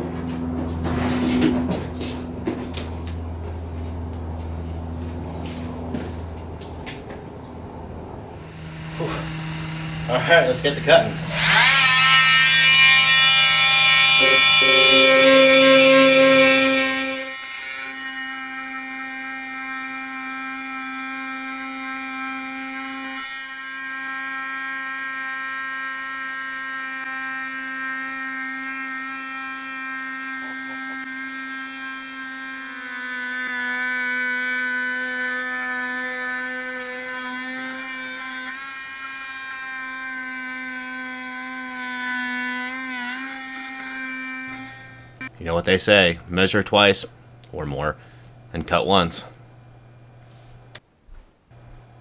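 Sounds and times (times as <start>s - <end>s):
oscillating multi-tool buzzing: 8.4s - 45.4s.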